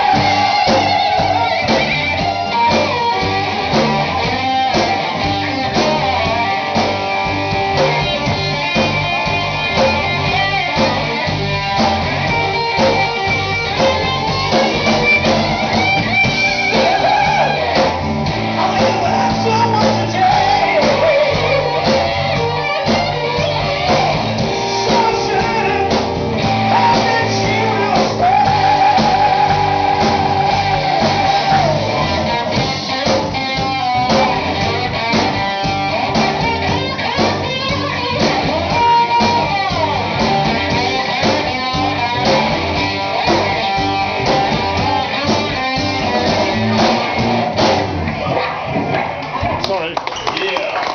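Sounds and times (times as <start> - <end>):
drums: 0.0 - 50.9
electric guitars: 0.0 - 50.9
man singing into a microphone: 18.6 - 21.9, 24.8 - 32.2.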